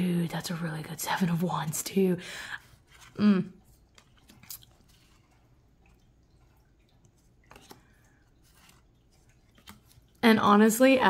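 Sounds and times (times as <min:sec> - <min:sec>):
tarot cards sliding and tapping: 0:02.7 - 0:03.2, 0:07.1 - 0:10.1.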